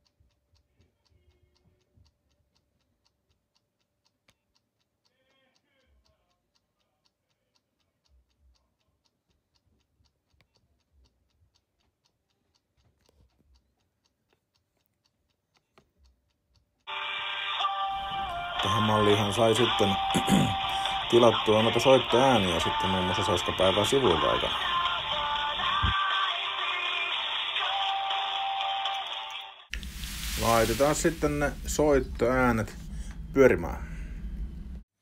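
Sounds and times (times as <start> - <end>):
faint even ticking: 17.6 - 26.0.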